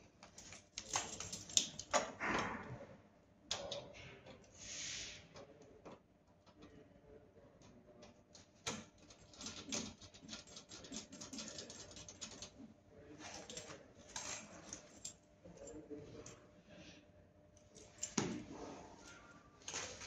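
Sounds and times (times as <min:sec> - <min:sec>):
small clicks and rattles: 0:00.2 - 0:02.2, 0:07.6 - 0:16.4.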